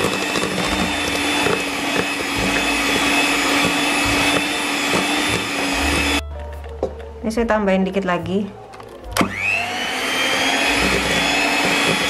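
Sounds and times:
electric hand mixer whining: 0.0 - 6.2, 9.2 - 12.0.

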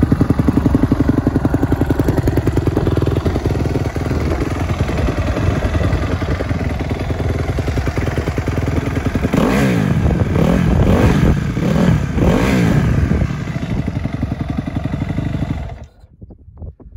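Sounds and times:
motorcycle engine idling and revving: 0.0 - 16.1.

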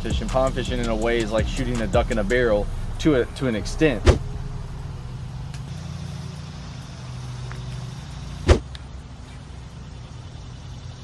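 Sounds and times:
low engine-like hum: 0.0 - 11.0
sharp thump: 4.0 - 4.3, 8.5 - 8.7.

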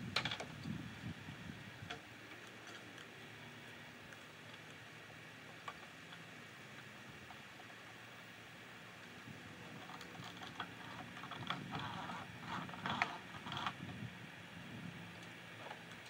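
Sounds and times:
plastic gutter creaking and clicking: 0.0 - 0.8, 9.5 - 14.0.

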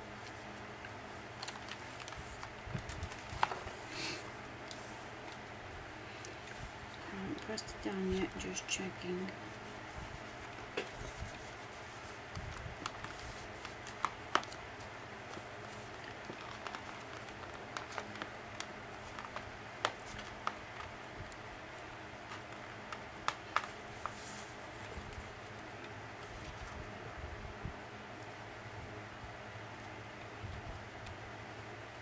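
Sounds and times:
faint steady hum: 0.0 - 32.0
paper rustling: 0.2 - 5.4, 9.4 - 21.0, 22.2 - 26.8.

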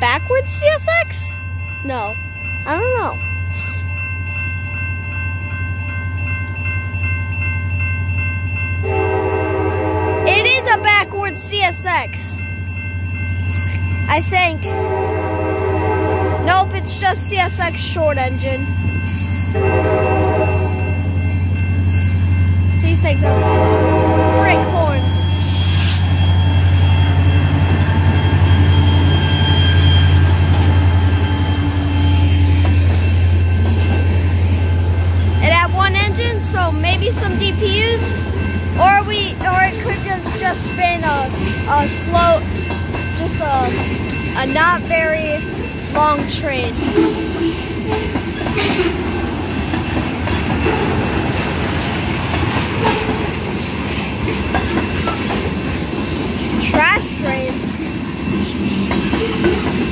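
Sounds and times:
diesel locomotive engine drone: 0.0 - 59.9
freight train rumbling: 0.0 - 59.9
high-pitched tones: 8.9 - 15.0, 16.4 - 48.2
wheels clicking over rail joints: 35.4 - 59.9.

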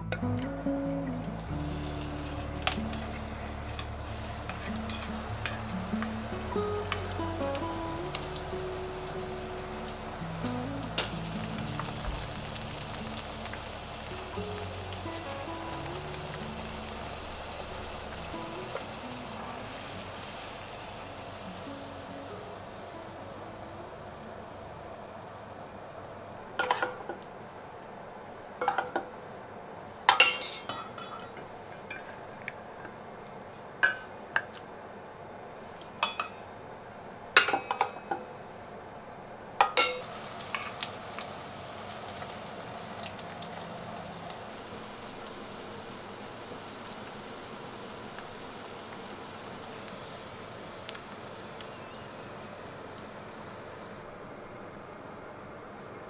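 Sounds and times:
steady hiss: 0.0 - 26.5, 40.0 - 56.0
dishes and utensils clinking: 26.6 - 27.2, 28.6 - 29.1, 30.1 - 32.3, 36.0 - 36.4, 37.4 - 38.2, 39.6 - 40.7.

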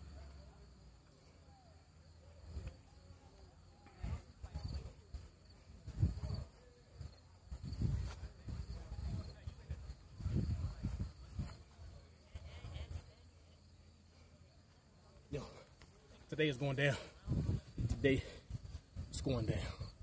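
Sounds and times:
muffled low rumbles and thumps: 3.9 - 12.8.

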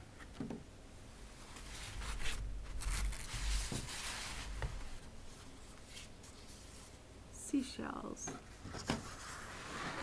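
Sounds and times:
paper rustling and handling: 1.5 - 6.9.

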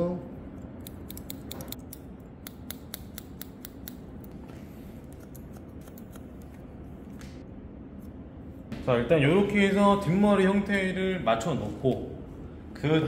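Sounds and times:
scissors snipping hair: 0.6 - 4.3, 5.0 - 6.7.

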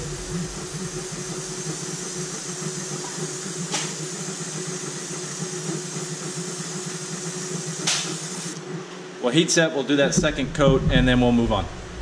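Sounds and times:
airbrush hissing: 0.0 - 8.6
compressor humming: 0.0 - 12.0.

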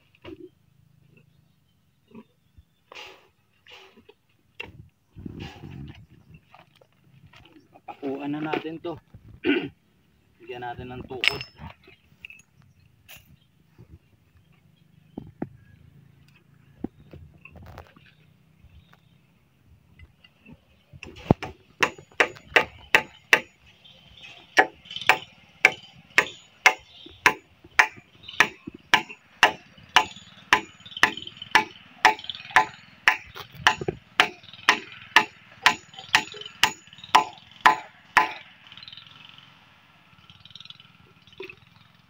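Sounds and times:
hammer driving nails: 21.1 - 23.6, 24.6 - 38.4.

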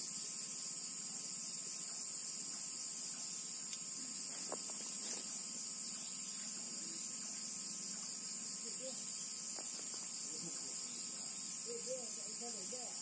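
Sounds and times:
night insects chirping: 0.0 - 13.0.

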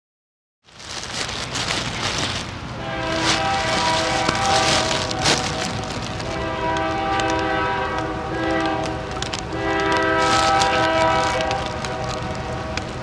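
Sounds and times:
low train rumble: 0.7 - 13.0
locomotive air horn blasts: 2.8 - 12.7.

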